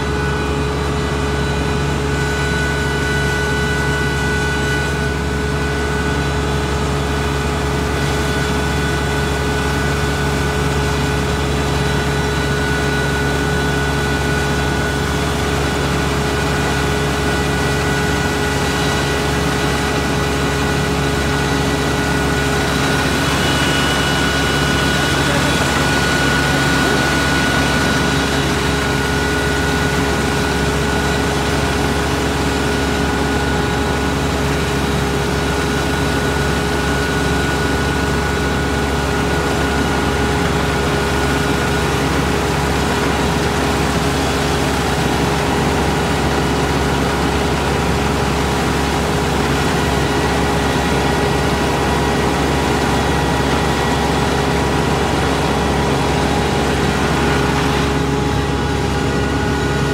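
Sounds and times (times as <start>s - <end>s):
whining tones: 0.0s - 35.2s
diesel engine and machinery running: 0.0s - 59.9s.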